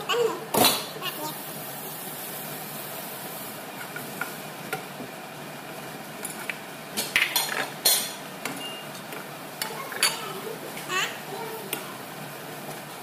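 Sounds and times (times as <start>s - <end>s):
garlic sizzling in oil: 0.9s - 7.0s.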